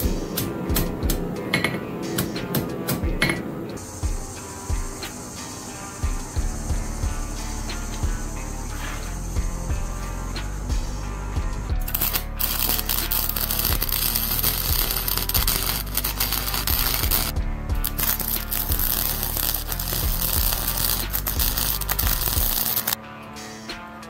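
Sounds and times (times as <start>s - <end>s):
welder arc crackling and sizzling: 0.0s - 2.7s, 3.7s - 11.2s, 11.8s - 23.0s
background music with steady beat: 0.0s - 24.0s
spatter popping: 11.8s - 23.0s.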